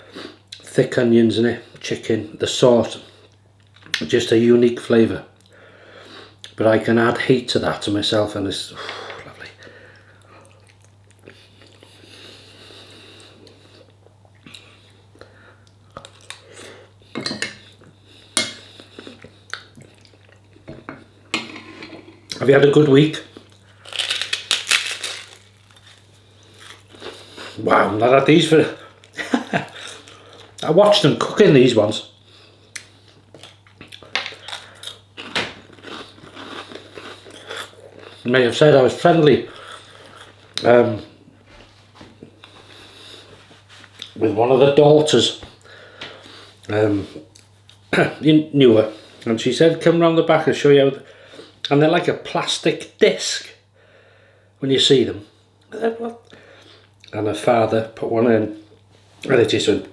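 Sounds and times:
quiet chewing: 9.1s - 16.8s
crunching cracker in mouth: 23.4s - 27.4s.

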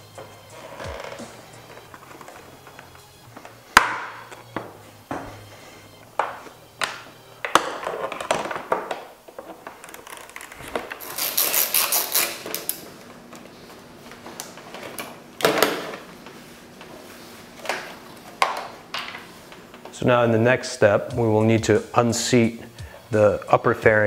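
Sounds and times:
hand ratchet clicking: 11.0s - 12.8s.

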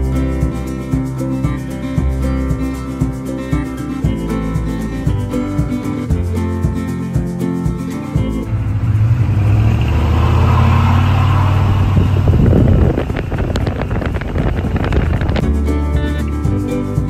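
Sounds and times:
road and wind noise: 0.0s - 17.0s
diesel truck engine droning: 7.4s - 17.0s
engine knocking: 11.8s - 15.5s.

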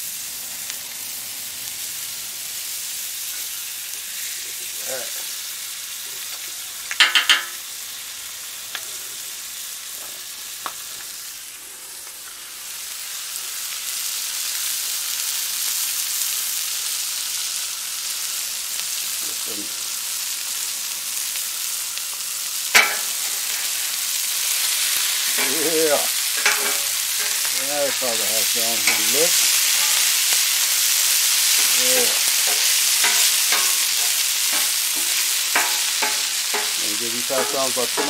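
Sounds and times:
food sizzling on griddle: 0.0s - 38.0s
metal spatula clanking: 7.0s - 7.6s, 22.8s - 23.9s, 24.6s - 30.5s, 31.1s - 38.0s.

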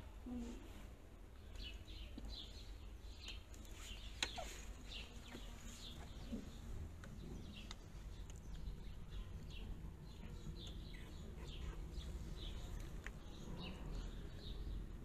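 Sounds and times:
puppies squeaking: 4.2s - 4.8s.

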